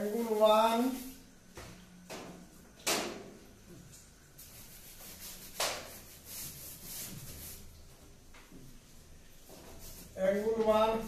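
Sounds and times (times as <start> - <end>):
duster rubbing on blackboard: 4.4 - 7.8.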